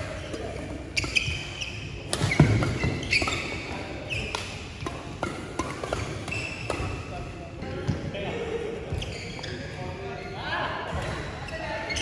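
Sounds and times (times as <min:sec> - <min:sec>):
shoes squeaking on floor: 0:00.0 - 0:04.8, 0:05.6 - 0:07.1, 0:08.8 - 0:12.0
rackets striking shuttlecock: 0:01.0 - 0:07.2.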